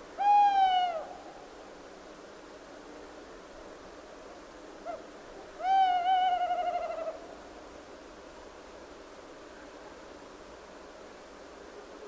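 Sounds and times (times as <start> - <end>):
owl hooting: 0.2 - 1.3, 5.6 - 7.2.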